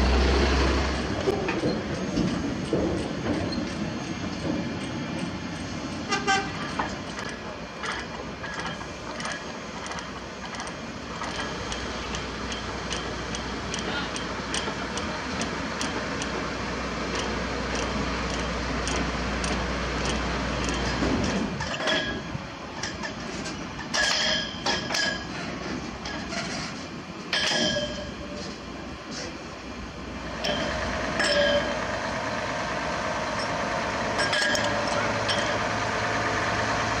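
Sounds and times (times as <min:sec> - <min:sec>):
heavy truck running: 0:00.0 - 0:37.0
loud metal clanks: 0:27.3 - 0:28.2, 0:30.4 - 0:32.0, 0:34.2 - 0:35.8.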